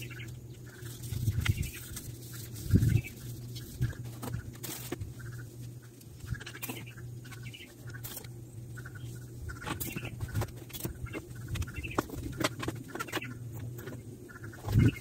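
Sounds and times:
steady low hum: 0.0s - 15.0s
sandpaper rubbing on metal tube: 0.8s - 5.4s
small clicks and squeaks: 9.6s - 15.0s.

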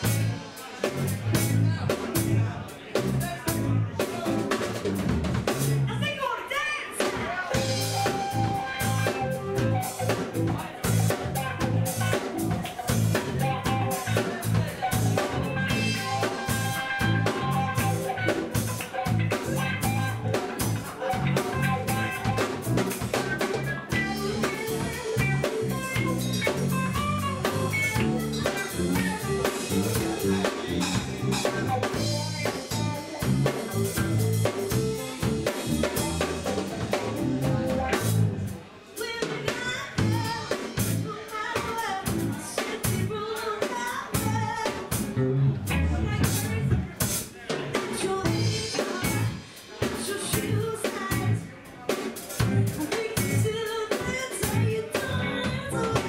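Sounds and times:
drum kit: 0.0s - 6.2s, 6.9s - 56.0s
electric guitars: 7.2s - 38.7s, 44.0s - 51.5s, 52.1s - 56.0s
woman singing: 31.9s - 34.1s, 39.0s - 45.0s, 47.8s - 51.5s, 52.4s - 56.0s.

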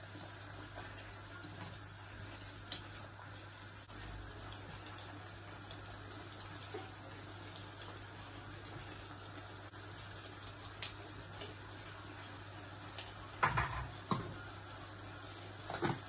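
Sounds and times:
kitchen items knocking and clattering: 13.4s - 14.4s, 15.7s - 16.0s.

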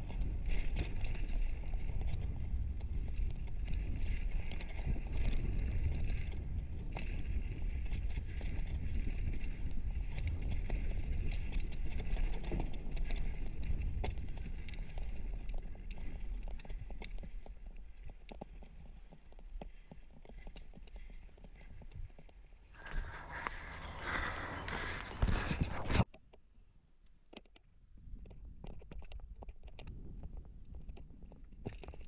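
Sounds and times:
wind rumble on microphone: 0.0s - 26.1s, 27.9s - 32.0s
small clicks and rattles: 0.0s - 26.4s
tyres over loose stones: 22.8s - 26.1s.

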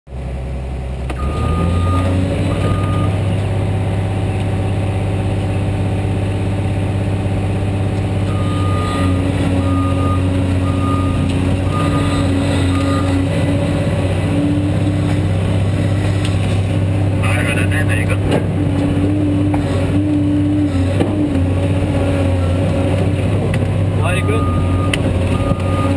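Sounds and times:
excavator diesel engine running: 0.1s - 25.9s
backup alarm beeping: 1.2s - 3.2s, 8.3s - 13.2s, 24.1s - 25.9s.

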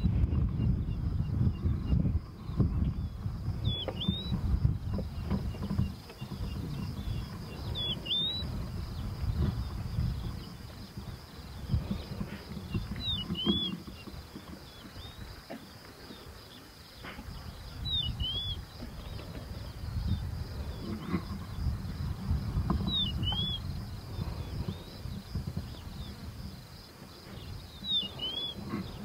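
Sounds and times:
high insect drone: 0.7s - 29.0s
bird whistled call: 17.9s - 18.6s, 27.8s - 28.6s.

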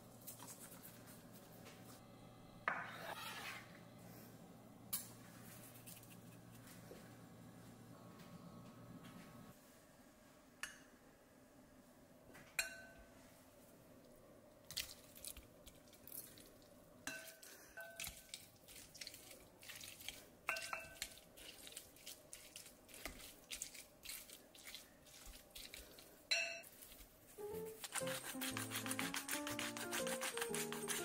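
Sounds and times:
utensils clinking on glass bowl: 20.5s - 21.0s.

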